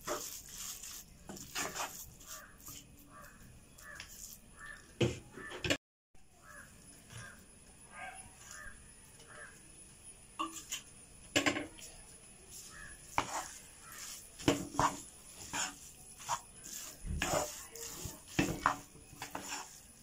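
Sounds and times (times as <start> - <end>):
metal spatula scraping a pan: 0.0 - 4.8, 12.5 - 20.0
faint bird calls: 2.2 - 9.7, 12.6 - 14.2.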